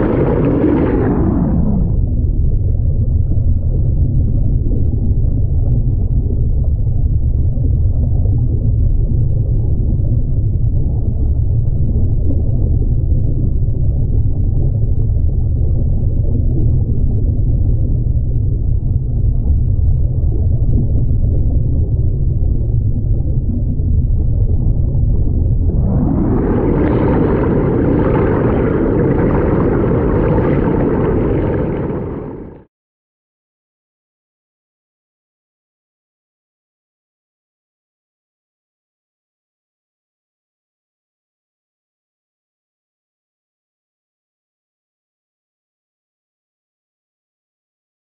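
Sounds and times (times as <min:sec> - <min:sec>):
muffled underwater water rushing: 0:00.0 - 0:32.7.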